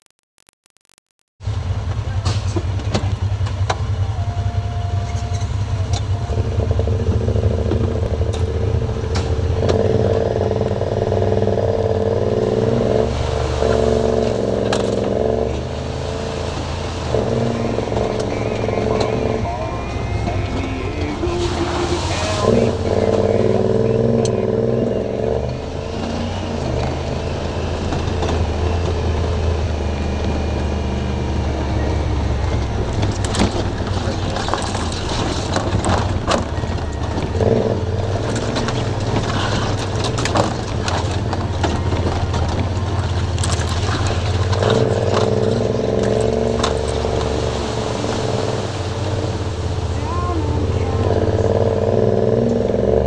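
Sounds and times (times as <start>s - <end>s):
utility vehicle engine running: 0.8s - 53.0s
vehicle knocks and rattles: 32.5s - 47.3s.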